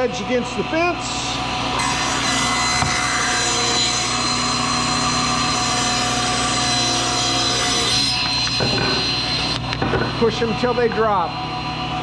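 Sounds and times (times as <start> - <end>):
table saw motor whine: 0.0 - 12.0
saw blade cutting wood: 1.8 - 9.8.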